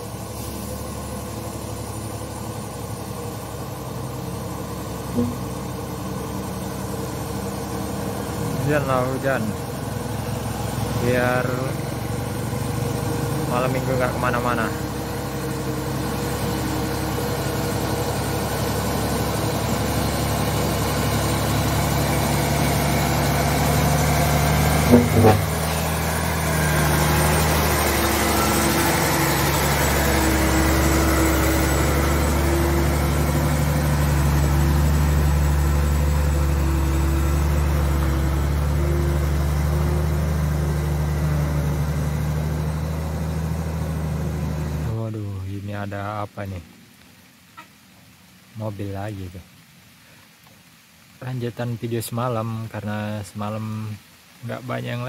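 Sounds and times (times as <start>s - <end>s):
diesel truck engine running: 0.0s - 45.6s
truck driving on gravel: 0.0s - 45.9s
sharp clanks: 24.8s - 25.9s.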